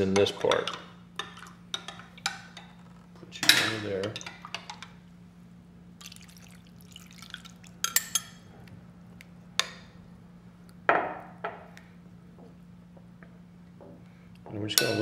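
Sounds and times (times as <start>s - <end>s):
liquid pouring into a bowl: 6.0s - 8.1s.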